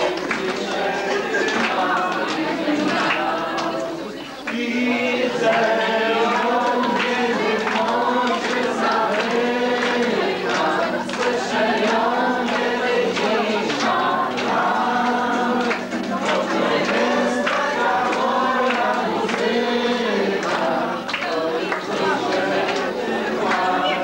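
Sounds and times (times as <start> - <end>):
group singing religious song: 0.0 - 24.0.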